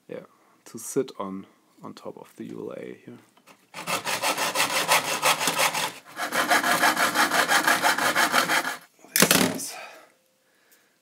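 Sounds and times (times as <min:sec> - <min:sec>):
hacksaw cutting copper plate: 0:03.8 - 0:08.8.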